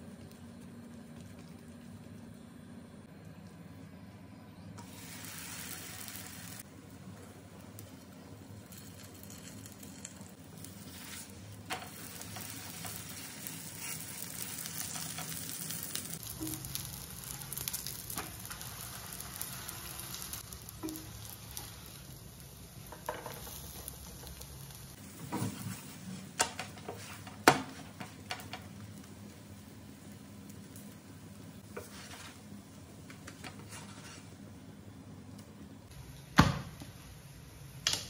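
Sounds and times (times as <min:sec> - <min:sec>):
bread sizzling in a pan: 0:04.8 - 0:34.6.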